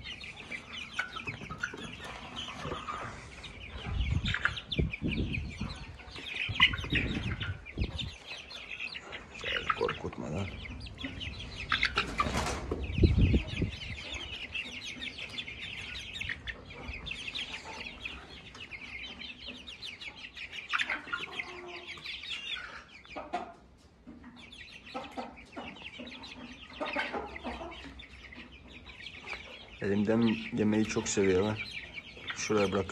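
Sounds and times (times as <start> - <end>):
chicks clucking and peeping: 0.0 - 32.9.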